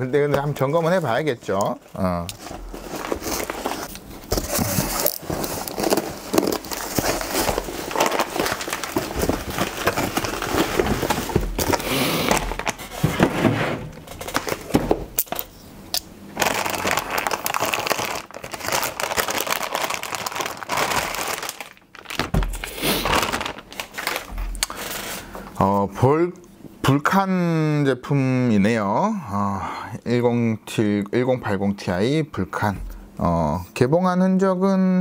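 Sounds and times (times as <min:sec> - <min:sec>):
plastic wrapping crinkling: 0:00.0 - 0:13.1, 0:14.0 - 0:15.6, 0:16.4 - 0:25.3.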